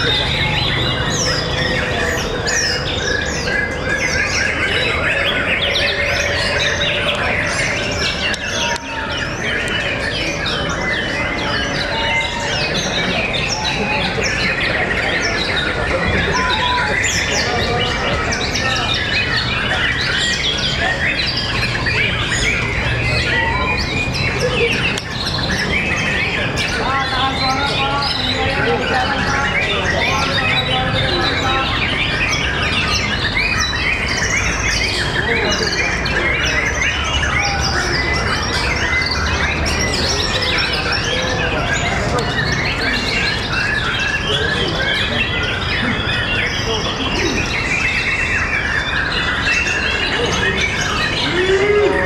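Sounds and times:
birds singing in chorus: 0.0s - 52.0s.

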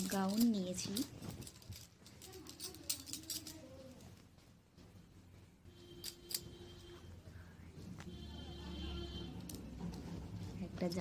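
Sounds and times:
cloth rustling: 0.0s - 7.1s.

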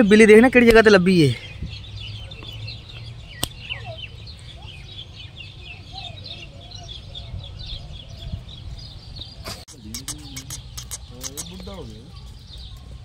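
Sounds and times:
small birds chirping: 0.0s - 13.0s
sharp clicks: 9.7s - 11.8s.

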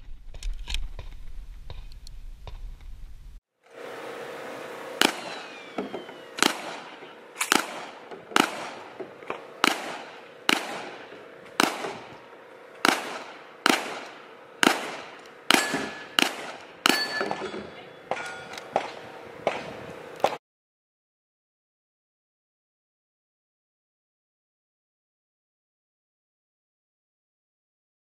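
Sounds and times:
gunshots with echo: 6.4s - 8.9s, 9.6s - 12.1s, 12.8s - 17.5s.

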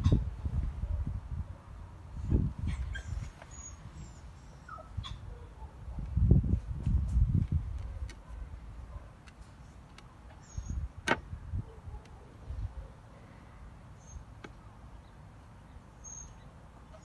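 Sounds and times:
small bird chirping: 2.7s - 5.3s, 10.4s - 10.9s, 14.9s - 17.0s.

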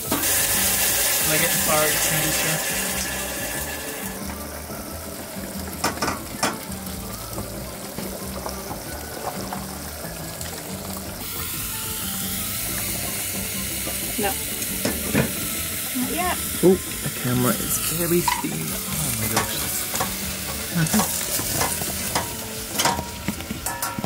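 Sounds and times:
background music: 0.0s - 24.0s
pot at rolling boil: 0.0s - 24.0s
sizzling in oil: 0.0s - 24.0s
metal tongs clinking on pan: 17.8s - 24.0s.

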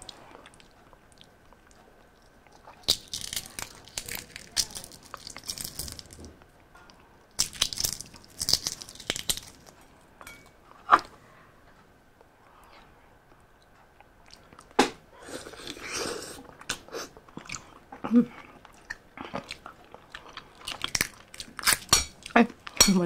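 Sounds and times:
eggshell crackling: 0.0s - 6.5s, 7.2s - 9.8s, 15.4s - 23.0s.

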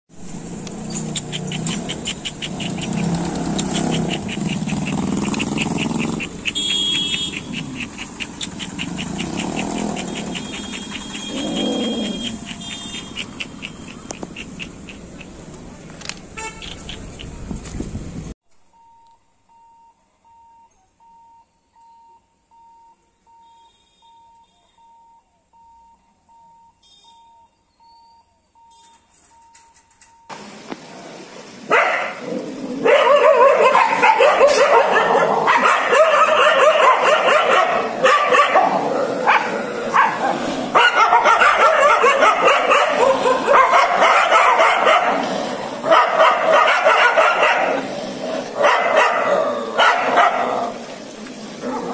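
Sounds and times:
dogs barking and yelping: 0.7s - 15.4s, 31.7s - 51.9s
faint electronic beep: 18.6s - 30.3s.

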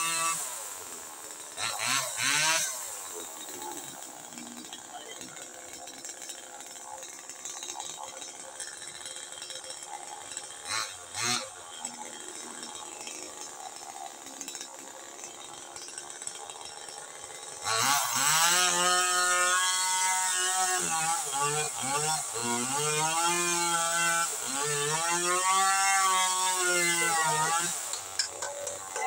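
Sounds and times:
chainsaw idling and revving: 0.0s - 29.0s.

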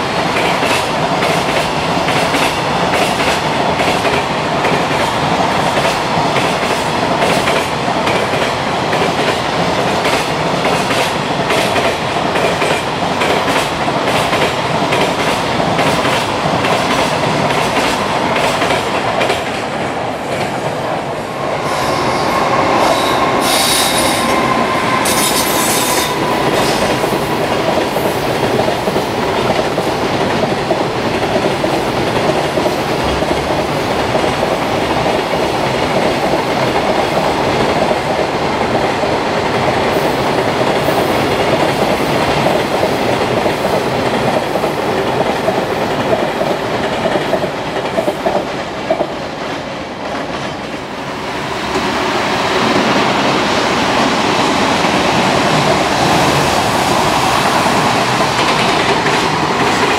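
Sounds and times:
train wheels clattering on rails: 0.0s - 59.9s
high-pitched wheel squeals: 21.6s - 27.0s.

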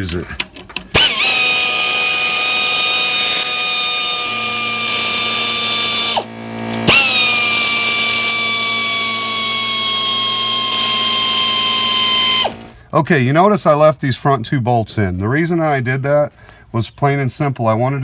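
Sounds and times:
electric ratchet motor whine: 0.9s - 12.8s.

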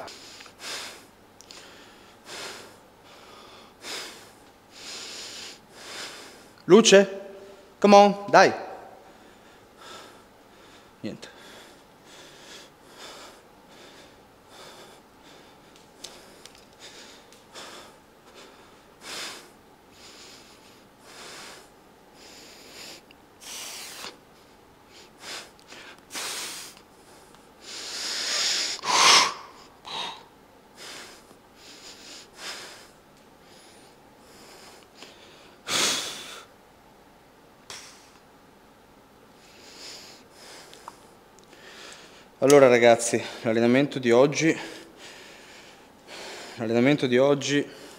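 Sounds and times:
man breathing hard: 0.0s - 6.6s, 8.9s - 36.5s, 39.4s - 42.4s, 44.5s - 46.6s.

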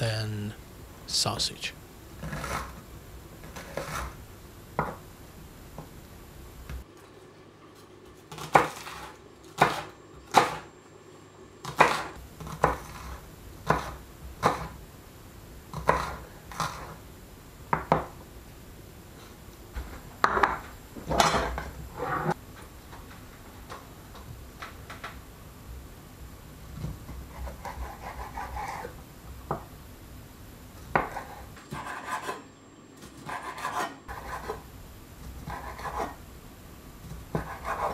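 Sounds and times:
knife chopping on wooden board: 8.3s - 10.6s, 11.6s - 14.7s, 30.9s - 32.4s, 37.3s - 37.9s.

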